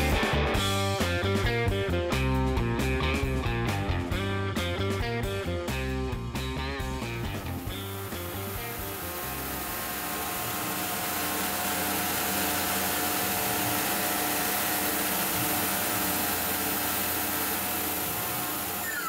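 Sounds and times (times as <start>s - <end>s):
mill cutting board: 7.0s - 19.0s
shop vacuum hissing: 7.1s - 19.0s.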